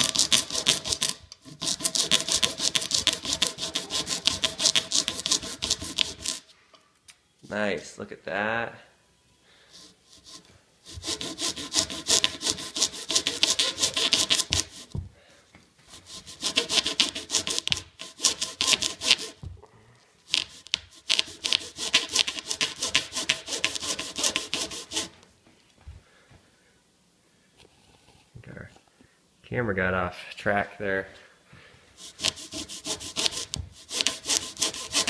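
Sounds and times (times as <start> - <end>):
hand saw rasping into leather: 0.0 - 6.4, 9.8 - 15.0, 15.9 - 19.5, 20.3 - 25.1, 32.0 - 35.0.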